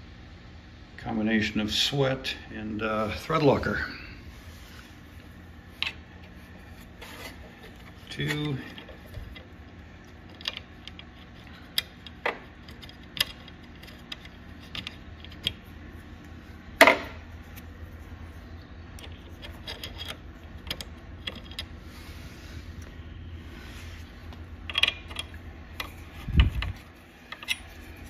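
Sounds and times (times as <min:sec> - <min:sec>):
metal bolt clicks and clinks: 0:24.7 - 0:25.9, 0:27.3 - 0:27.7.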